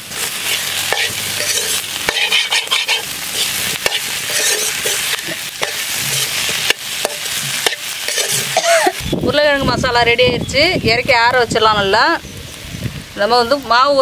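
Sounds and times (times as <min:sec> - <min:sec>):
spatula scraping pan: 0:00.0 - 0:09.0
food sizzling: 0:00.0 - 0:14.0
spatula clinking against pan: 0:03.8 - 0:08.9.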